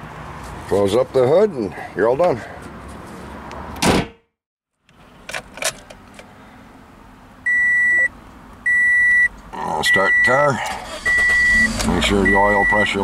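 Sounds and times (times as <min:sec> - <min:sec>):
car hood slamming: 0:03.8 - 0:04.2
dashboard warning chime beeps: 0:07.5 - 0:08.1, 0:08.7 - 0:13.0.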